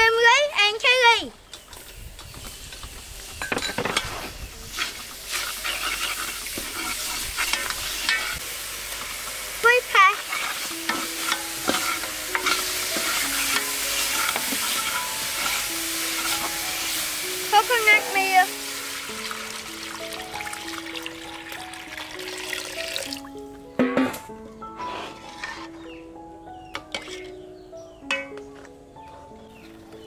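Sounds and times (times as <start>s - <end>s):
paste sizzling in a pot: 1.8s - 23.4s
metal ladle scraping pot: 3.6s - 8.4s, 10.2s - 18.8s, 24.8s - 26.0s, 26.8s - 27.5s.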